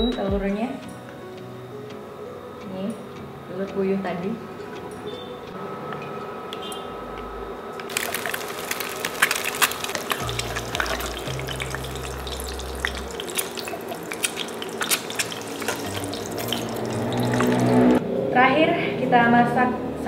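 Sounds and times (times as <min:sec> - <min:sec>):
eggs sizzling and popping in oil: 0:07.8 - 0:18.0.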